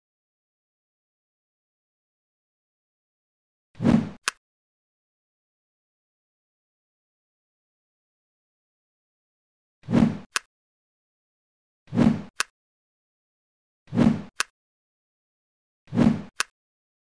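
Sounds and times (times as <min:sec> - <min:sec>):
sharp click: 0:03.8 - 0:04.4, 0:09.9 - 0:10.5, 0:12.0 - 0:12.5, 0:14.0 - 0:14.5, 0:16.0 - 0:16.5.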